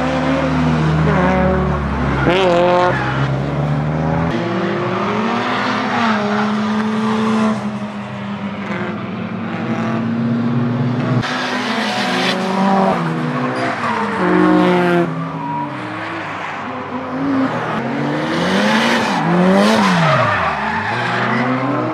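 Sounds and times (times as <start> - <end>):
car engine revving: 8.5 - 21.9.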